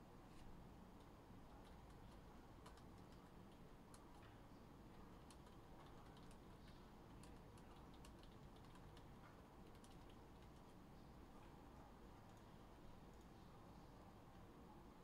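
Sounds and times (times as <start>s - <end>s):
low room hum: 0.0s - 15.0s
typing on computer keyboard: 1.0s - 10.8s.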